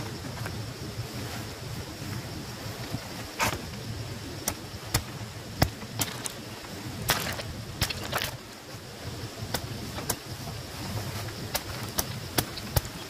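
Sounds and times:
plant stems snapping and crackling: 4.4s - 6.4s, 7.0s - 8.4s.

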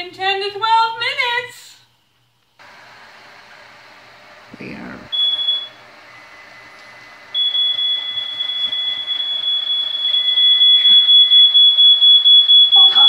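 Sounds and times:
smoke alarm high-pitched tone: 5.1s - 6.7s, 7.3s - 13.0s.

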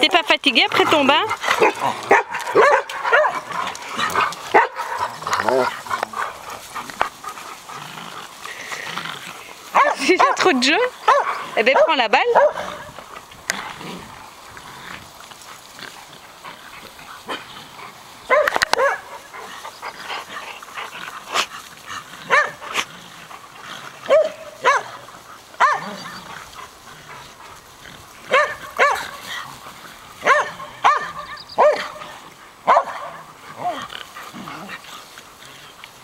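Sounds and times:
dogs barking: 0.0s - 7.7s, 9.7s - 13.1s, 18.2s - 21.6s, 22.2s - 22.9s, 24.0s - 27.6s, 28.2s - 29.4s, 30.1s - 34.8s.

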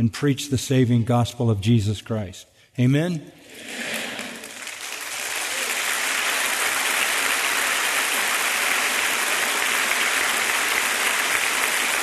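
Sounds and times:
crowd applauding: 3.5s - 12.0s.

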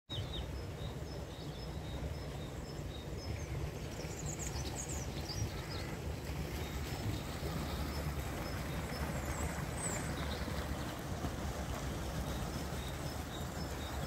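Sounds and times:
small birds calling: 0.1s - 11.1s.

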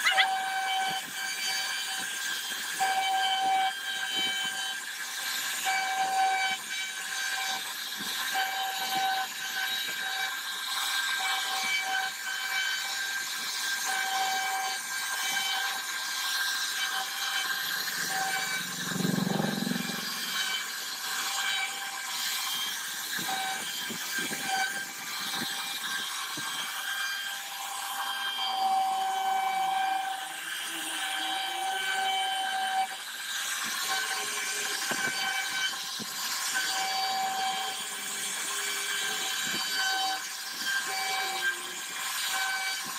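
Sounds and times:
cutter hissing through wood: 0.0s - 42.9s
router spindle whining: 0.0s - 42.9s
low rumble: 17.9s - 20.6s.

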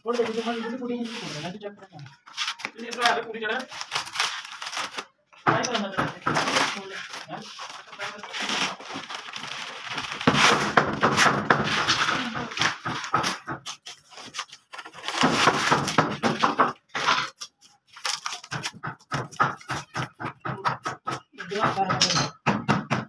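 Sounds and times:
wood veneer tearing and rustling: 2.2s - 5.1s, 6.2s - 19.3s.

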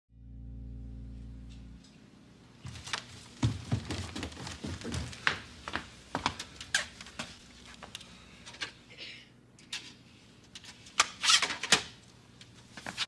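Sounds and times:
quick footsteps on floor: 2.6s - 8.0s.

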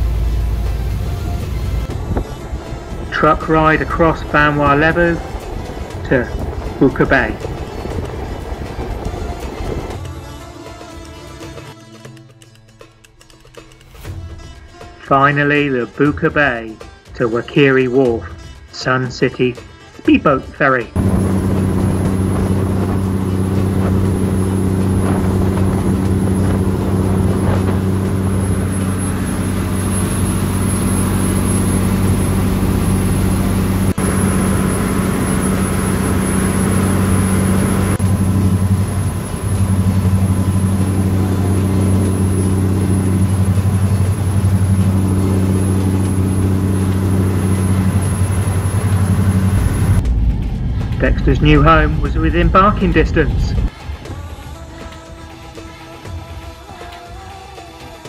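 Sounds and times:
water rushing: 0.0s - 10.0s, 21.0s - 50.0s
speedboat engines humming: 0.0s - 11.8s, 20.9s - 58.0s.

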